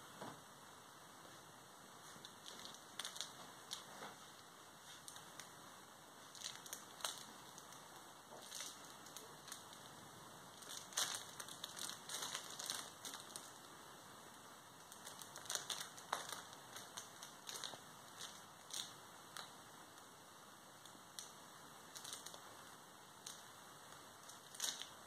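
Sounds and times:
fabric tunnel rustling and crinkling: 2.0s - 5.6s, 6.2s - 13.7s, 14.8s - 19.5s, 21.9s - 23.4s, 24.1s - 25.0s.

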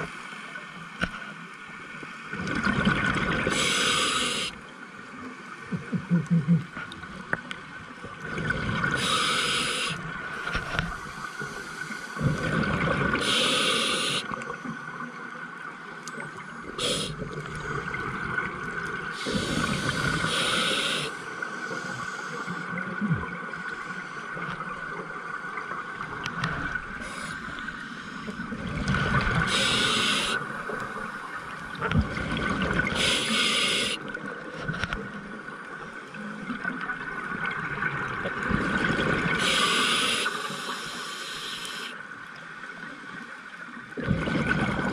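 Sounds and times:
hissing regulator inhalations: 3.5s - 4.6s, 9.0s - 10.0s, 13.2s - 14.4s, 16.8s - 17.2s, 19.2s - 22.7s, 27.0s - 28.4s, 29.4s - 31.2s, 32.9s - 34.0s, 39.4s - 42.0s
gurgling exhalation bubbles: 44.0s - 44.9s.

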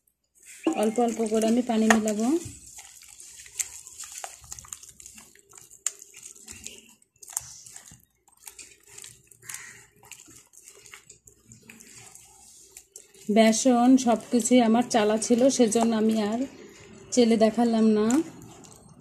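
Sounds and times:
hand squelching wet batter: 0.0s - 19.0s.

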